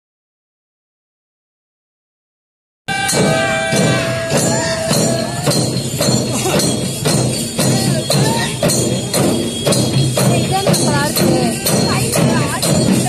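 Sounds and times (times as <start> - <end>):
held high tones: 2.9 - 13.0
large barrel drums beating: 2.9 - 13.0
metallic jingling: 2.9 - 13.0.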